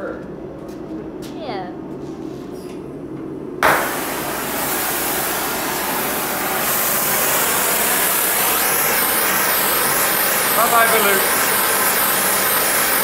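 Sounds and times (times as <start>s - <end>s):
gas torch hissing: 3.6s - 13.0s
gas torch lighting pop: 3.6s - 13.0s.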